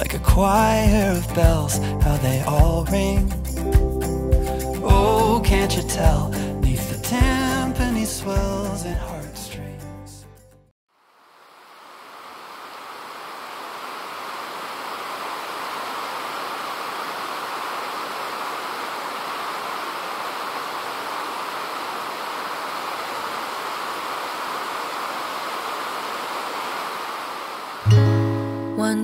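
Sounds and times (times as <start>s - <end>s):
steady rushing noise: 11.5s - 27.9s.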